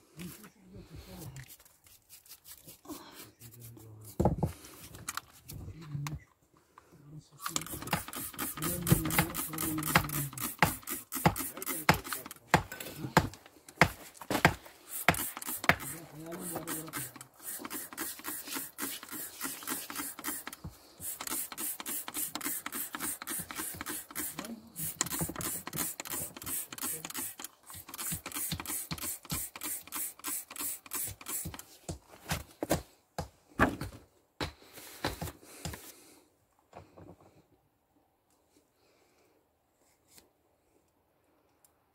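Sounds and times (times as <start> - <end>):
spray bottle spritzing: 1.5 - 3.6, 7.4 - 12.4, 14.9 - 31.7.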